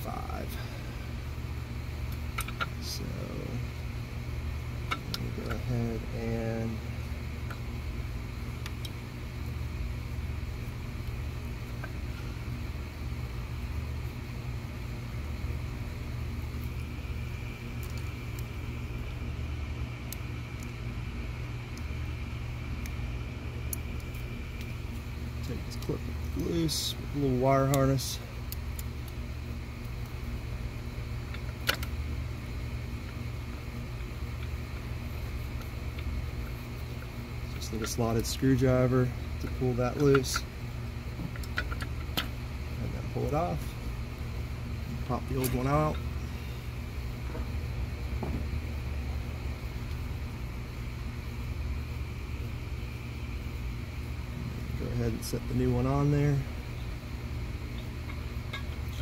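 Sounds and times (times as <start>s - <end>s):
faint clicks of handled parts: 2.1s - 2.9s, 31.3s - 32.0s, 35.5s - 38.6s, 39.4s - 40.5s, 41.2s - 42.4s, 45.0s - 46.1s.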